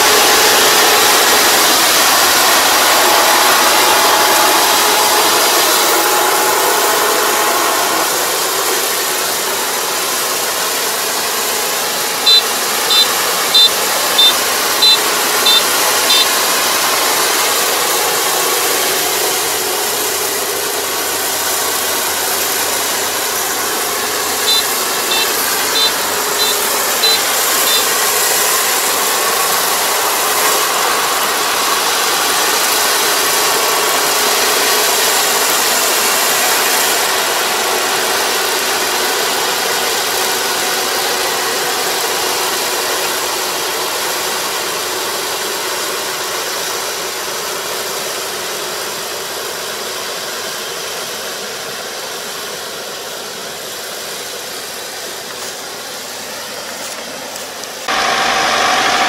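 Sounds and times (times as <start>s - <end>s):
combine harvester running: 0.0s - 59.0s
short high beeps: 12.2s - 16.4s, 24.4s - 28.1s.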